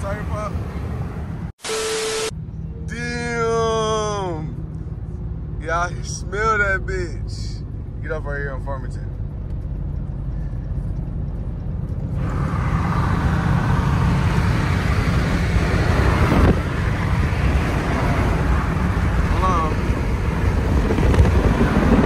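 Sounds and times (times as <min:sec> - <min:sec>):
car engine and road drone: 0:00.0 - 0:22.0
wind and road noise hiss: 0:12.2 - 0:22.0.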